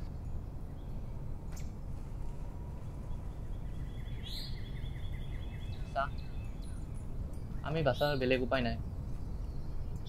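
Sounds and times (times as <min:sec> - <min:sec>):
low background rumble: 0:00.0 - 0:10.0
small bird chirping trill: 0:02.8 - 0:10.0.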